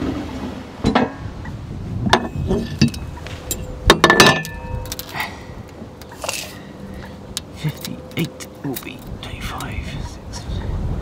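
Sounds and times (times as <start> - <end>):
metallic clinks and knocks: 2.1 - 5.2.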